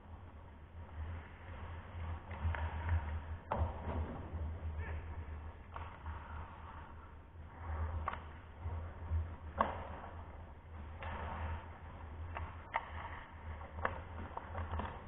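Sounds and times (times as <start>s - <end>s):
hockey sticks clacking on puck: 7.9s - 8.4s, 9.4s - 10.2s, 10.8s - 15.0s.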